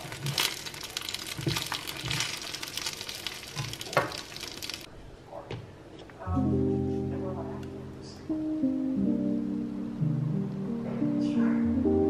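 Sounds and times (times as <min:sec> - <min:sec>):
food sizzling in a pan: 0:00.0 - 0:04.9.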